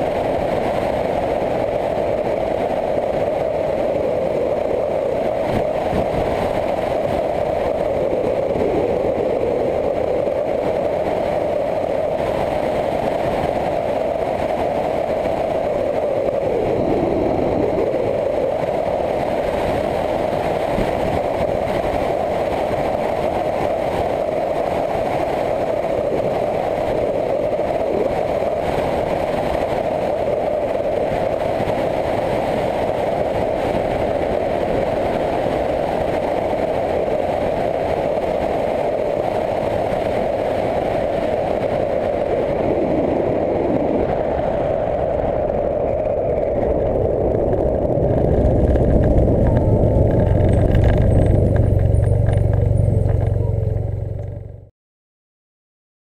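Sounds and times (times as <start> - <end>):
wind noise: 0.0 - 54.7
motorcycle engine running: 45.8 - 54.7.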